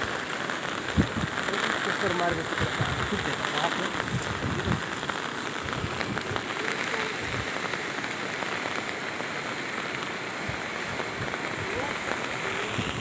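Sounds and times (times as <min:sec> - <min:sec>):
rain pattering on water: 0:00.0 - 0:13.0.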